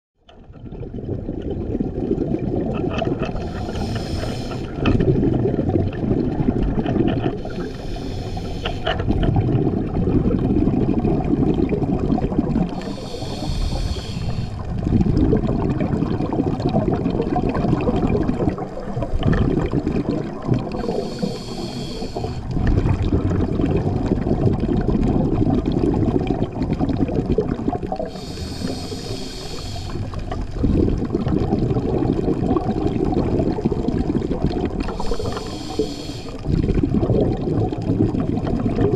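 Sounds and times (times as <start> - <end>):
low bubbling of exhaled air: 0.3 - 38.9
regulator inhalation hiss: 3.4 - 4.8, 7.4 - 8.9, 12.7 - 14.6, 20.8 - 22.5, 28.0 - 30.1, 34.9 - 36.4.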